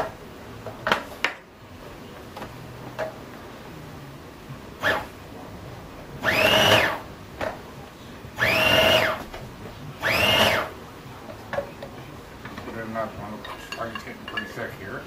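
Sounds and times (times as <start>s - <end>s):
food processor motor whine: 6.2s - 7.0s, 8.4s - 9.2s, 10.0s - 10.7s.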